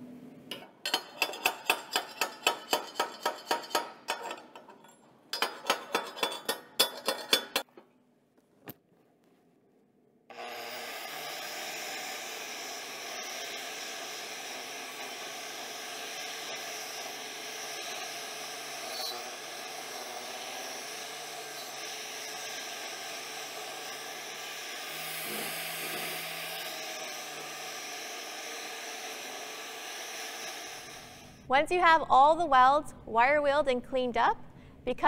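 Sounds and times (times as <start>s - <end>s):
wire wheel grinder brushing steel: 10.3s - 31.4s.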